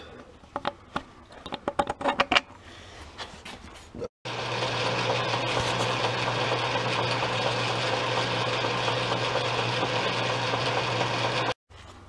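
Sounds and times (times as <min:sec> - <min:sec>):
metal lathe humming: 0:04.3 - 0:11.6.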